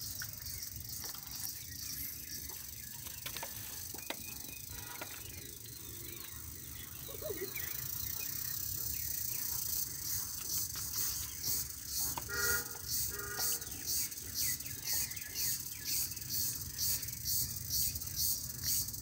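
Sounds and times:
insects chirring: 0.0 - 19.0
horn toots: 12.2 - 13.8.

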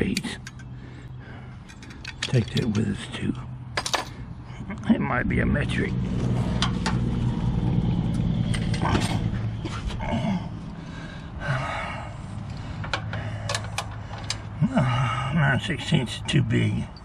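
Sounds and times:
low droning hum: 0.0 - 17.0
hand tools clinking: 1.6 - 2.8.

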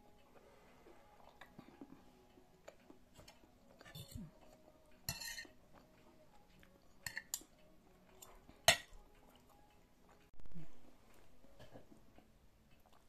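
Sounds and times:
cutlery clinking on a plate: 5.1 - 5.6, 7.0 - 7.5, 8.2 - 9.0.

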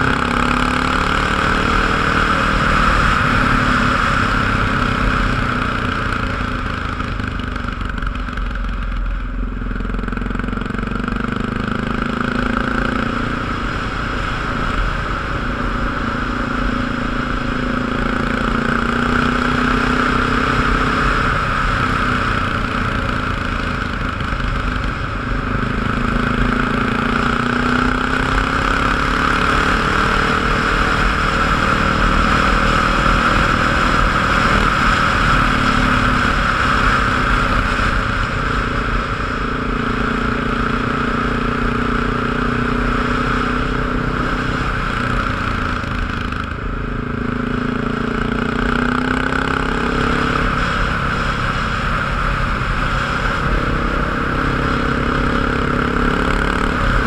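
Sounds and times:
road and wind noise: 0.0 - 57.0
vehicle engine running: 0.0 - 57.0.

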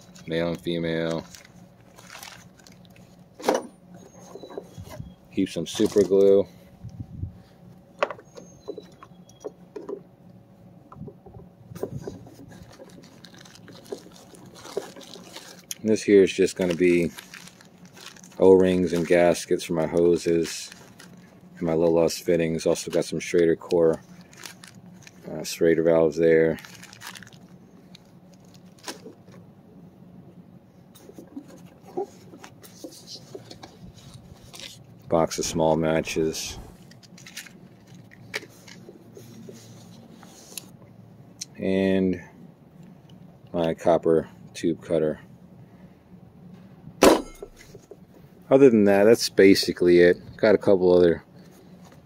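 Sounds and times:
rustling in fabric bag: 0.1 - 3.2, 11.8 - 19.6, 26.5 - 29.3.

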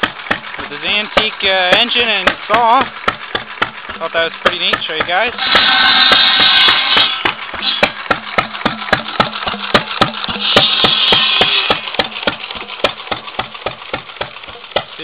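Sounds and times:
gas engine popping: 0.0 - 15.0
buzz saw blade ringing and whining: 3.9 - 15.0.

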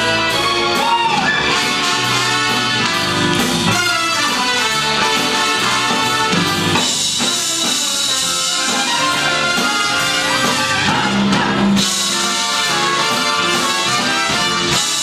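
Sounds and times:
jazz band with brass and drums: 0.0 - 15.0.

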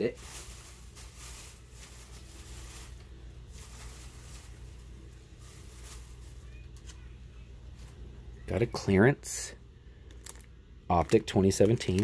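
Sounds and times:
packaging rustling: 0.0 - 7.0, 10.1 - 12.0
low steady hum: 0.0 - 12.0.

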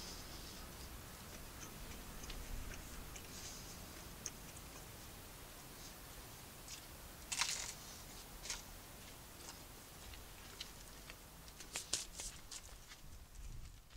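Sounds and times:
toasted bread crunching: 6.7 - 8.7.

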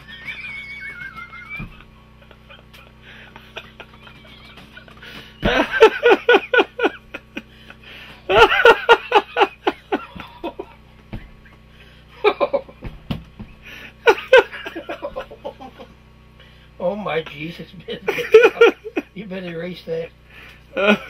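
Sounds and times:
man laughing hard: 0.0 - 12.9, 13.6 - 15.9, 17.9 - 19.2, 20.7 - 21.0.

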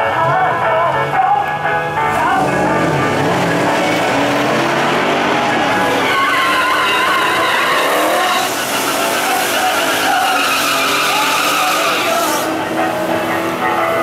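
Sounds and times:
car engine revving: 0.1 - 14.0
tyres squealing and hissing: 5.6 - 12.6.

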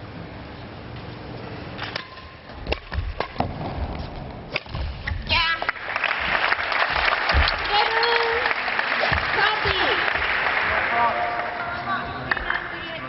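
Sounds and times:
applause: 5.6 - 12.9.

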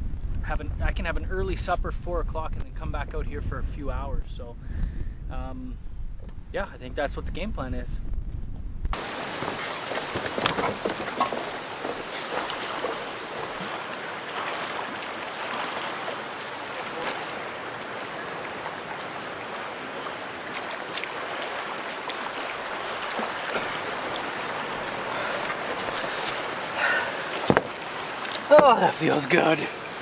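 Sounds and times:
running water: 9.0 - 30.0.

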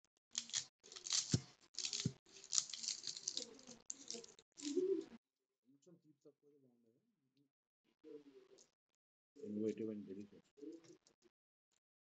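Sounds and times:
pastry crackling and crunching: 0.3 - 5.1.

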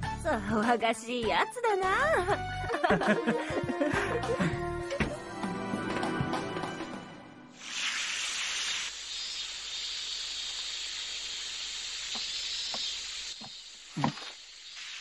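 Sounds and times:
hose nozzle spraying water: 7.6 - 15.0.

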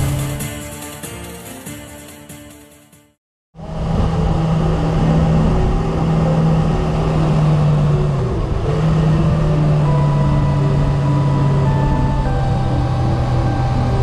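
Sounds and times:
motorcycle engine running: 3.6 - 14.0
wind noise on microphone: 3.6 - 14.0.

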